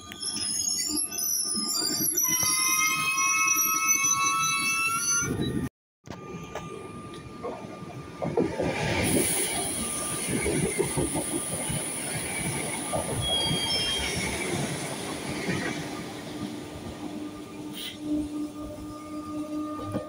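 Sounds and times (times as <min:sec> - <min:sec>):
train high-pitched whine: 0:00.1 - 0:20.0
train wheels rumbling on rails: 0:06.1 - 0:19.0
wheel squeals: 0:12.6 - 0:14.7.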